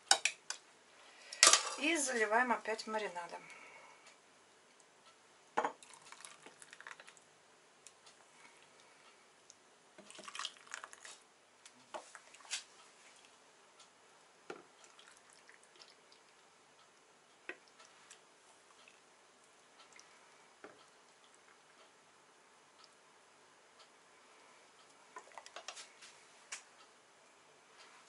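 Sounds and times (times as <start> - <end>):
liquid splashing and dripping: 5.8 - 7.2, 10.0 - 11.2, 14.8 - 16.4.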